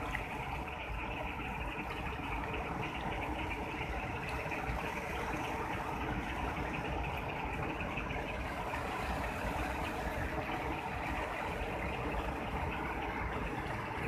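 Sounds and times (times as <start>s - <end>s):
floodwater rushing: 0.0s - 14.0s.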